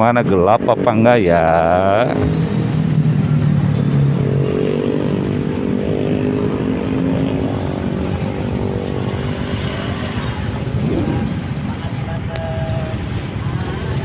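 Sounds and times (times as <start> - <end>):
motorcycle engines humming: 0.0 - 14.0
road noise: 0.0 - 14.0.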